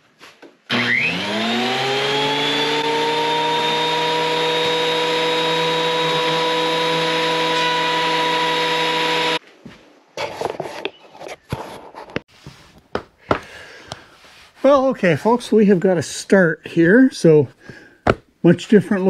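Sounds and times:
thickness planer running: 0.7s - 9.4s.

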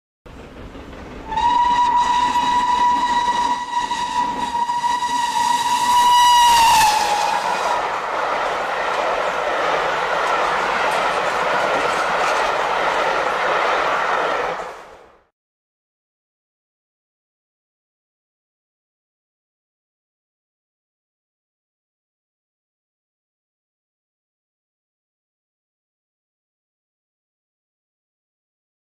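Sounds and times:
train running rush: 0.3s - 15.3s
steam locomotive whistle: 1.2s - 8.0s.

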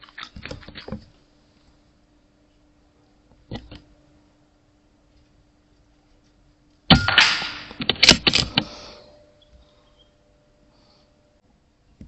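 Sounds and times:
air rifle shot: 6.9s - 8.3s.

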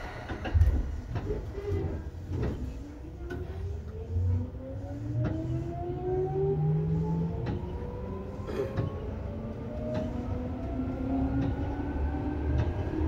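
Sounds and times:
clicks and knocks under train floor: 0.2s - 3.6s.

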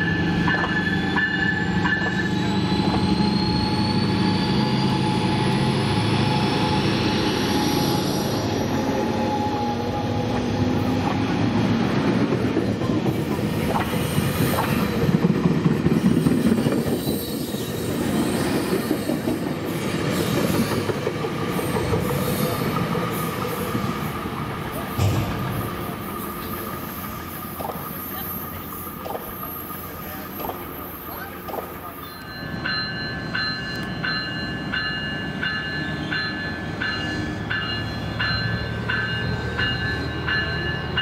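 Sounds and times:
train whine rising in pitch: 0.0s - 11.6s
train wheels rumbling on rail: 0.0s - 41.0s.

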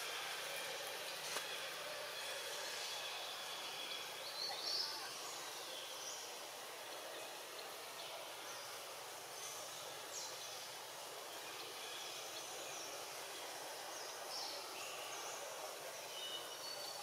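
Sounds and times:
steady high hiss: 0.0s - 17.0s.

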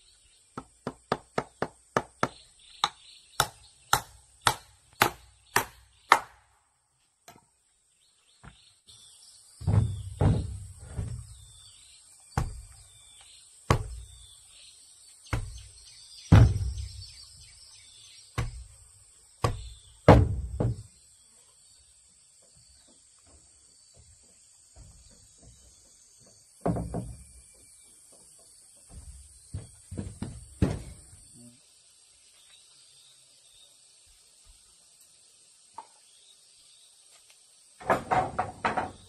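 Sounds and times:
hammer knocking on wood: 0.6s - 6.2s, 16.3s - 16.9s, 19.4s - 20.9s, 26.6s - 27.2s
wooden ladder thuds: 9.6s - 11.5s, 12.4s - 12.8s, 13.7s - 14.1s, 15.3s - 15.7s, 16.3s - 17.1s, 18.4s - 18.8s, 19.4s - 20.9s, 24.7s - 27.4s, 28.8s - 31.2s, 37.8s - 39.0s.

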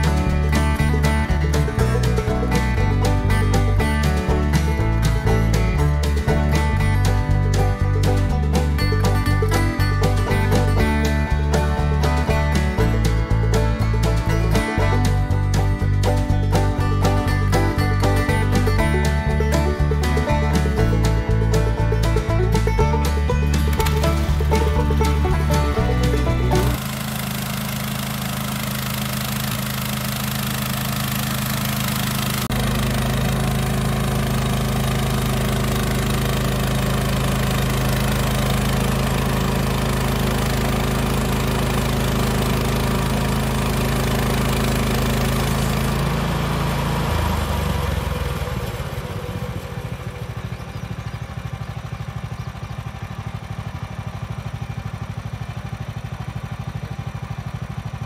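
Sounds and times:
gasoline engine running: 0.0s - 58.0s.

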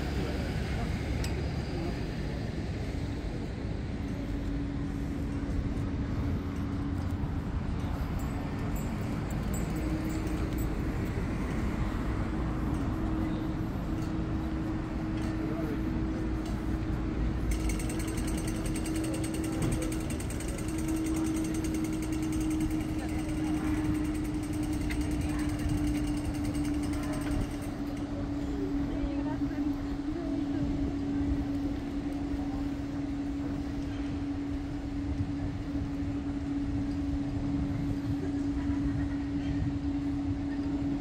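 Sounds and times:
steady low hum: 0.0s - 41.0s
traffic rumble: 0.0s - 41.0s
rapid mechanical ticking: 17.4s - 28.0s.

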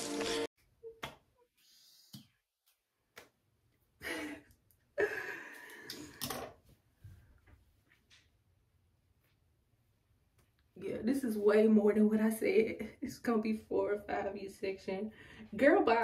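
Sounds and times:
woman sighing: 5.0s - 6.2s.

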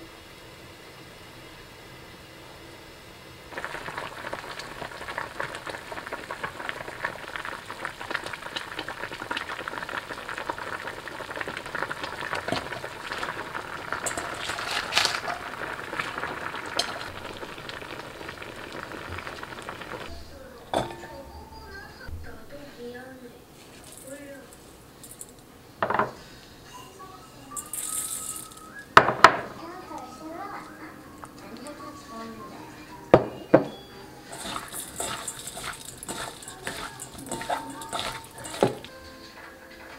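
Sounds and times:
broth boiling hard in a pan: 0.0s - 20.9s, 22.6s - 25.3s, 27.6s - 29.6s, 34.2s - 38.9s
gas stove hiss: 0.0s - 30.7s, 31.5s - 39.9s.

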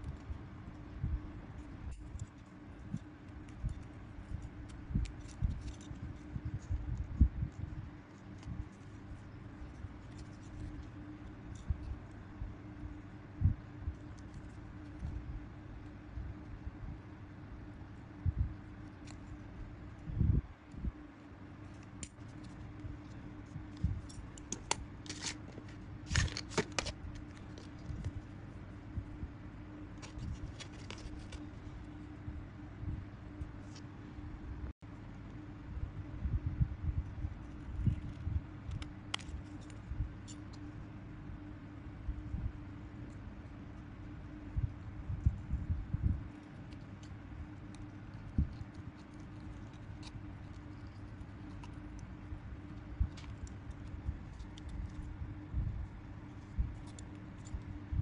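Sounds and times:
fingers handling plastic and metal: 0.0s - 16.6s, 17.8s - 20.1s, 20.7s - 28.6s, 29.7s - 32.0s, 37.4s - 41.5s, 46.2s - 58.0s
faint steady hum: 0.0s - 58.0s
scissors snipping paper: 1.6s - 12.2s, 21.6s - 28.2s, 46.4s - 55.2s
paper and foil rustling: 24.0s - 28.1s, 30.0s - 31.6s.

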